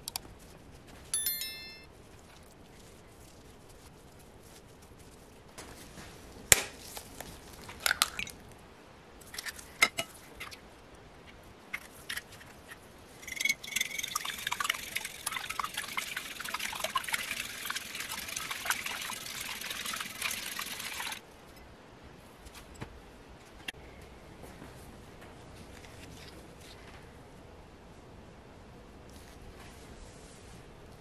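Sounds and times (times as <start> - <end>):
whisk clattering in ceramic bowl: 13.2 - 21.2.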